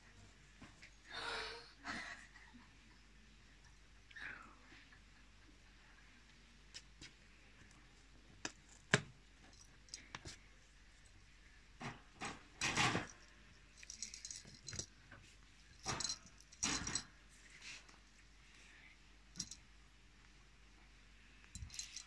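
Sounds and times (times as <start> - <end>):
wire pet cage rattling: 11.8 - 14.9, 15.8 - 17.2, 21.6 - 22.0.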